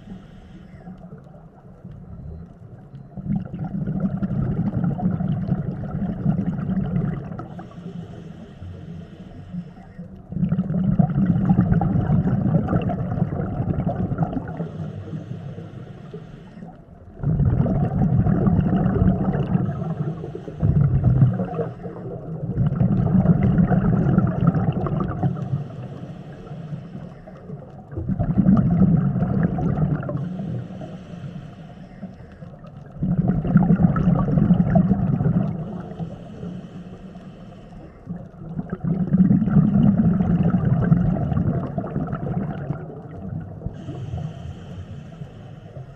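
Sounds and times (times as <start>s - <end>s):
diver breathing through regulator: 0.0s - 1.1s, 6.2s - 17.3s, 18.5s - 22.4s, 23.6s - 27.8s, 29.3s - 33.6s, 35.0s - 40.5s, 43.6s - 45.9s
gurgling exhaled bubbles: 0.8s - 8.3s, 10.2s - 16.1s, 17.1s - 31.2s, 32.5s - 36.7s, 38.0s - 45.2s.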